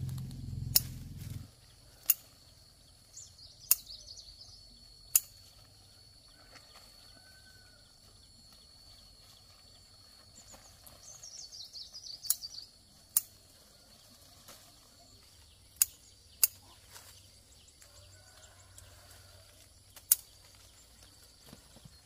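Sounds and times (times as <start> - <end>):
bird chirping: 0.0 - 5.4, 10.4 - 13.4, 14.9 - 18.1.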